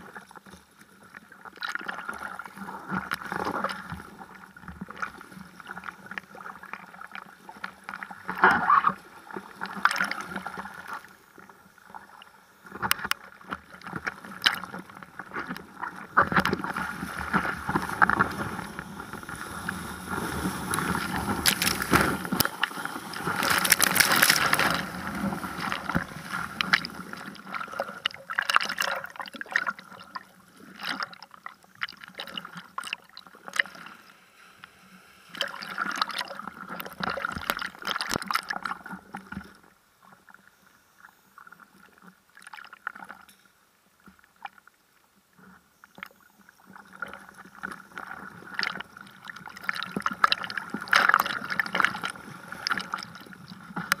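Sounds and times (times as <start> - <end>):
seawater sloshing and splashing: 12.8 - 33.9, 34.9 - 39.4, 46.6 - 54.0.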